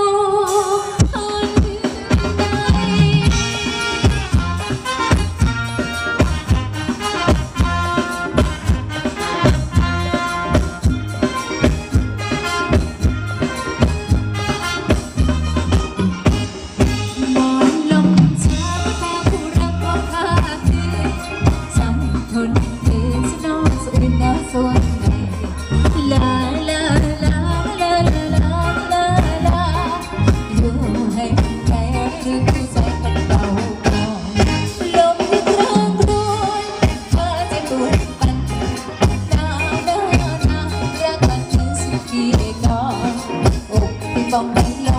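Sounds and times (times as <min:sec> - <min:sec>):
live band dance music over pa: 0:00.0 - 0:44.9
steady drum beat: 0:00.5 - 0:44.9
person singing: 0:17.2 - 0:44.9.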